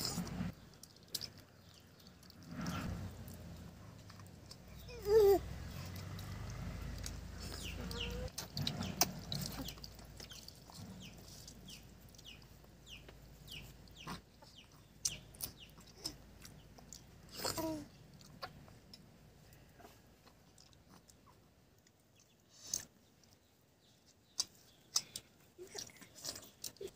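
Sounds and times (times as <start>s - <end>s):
chicks peeping: 7.0s - 17.0s
chicken clucking: 7.4s - 15.9s.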